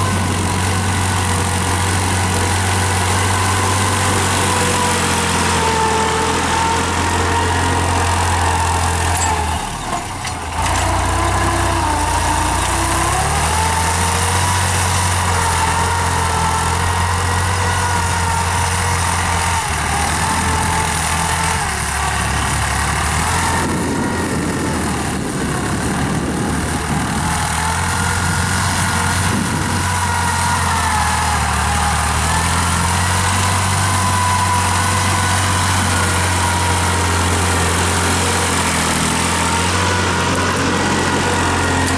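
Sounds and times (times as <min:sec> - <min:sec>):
tractor diesel engine under load: 0:00.0 - 0:41.9.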